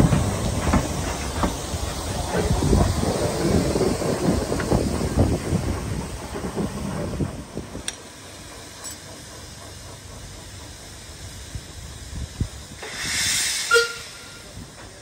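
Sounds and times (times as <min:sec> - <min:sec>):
steam hiss: 0:00.0 - 0:15.0.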